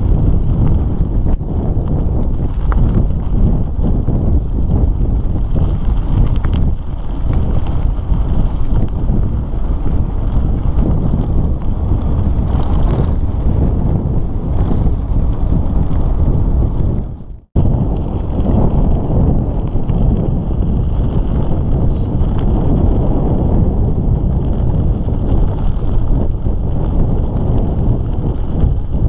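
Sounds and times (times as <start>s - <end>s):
wind buffeting microphone: 0.0s - 29.0s
tyres on gravel: 0.3s - 16.8s.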